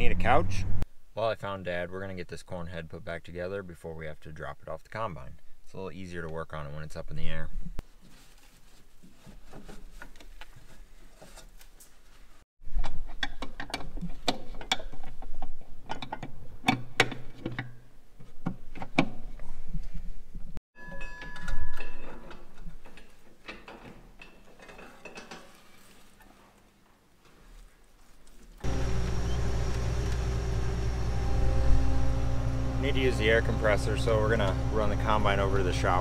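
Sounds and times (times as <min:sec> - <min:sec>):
metal tools clanking and clicking: 0:20.9 - 0:25.6.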